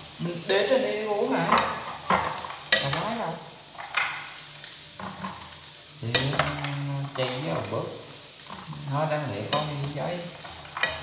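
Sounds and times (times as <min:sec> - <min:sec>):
macaroni sizzling in oil: 0:00.0 - 0:11.0
metal spoon scraping pan: 0:05.0 - 0:07.4, 0:10.3 - 0:11.0.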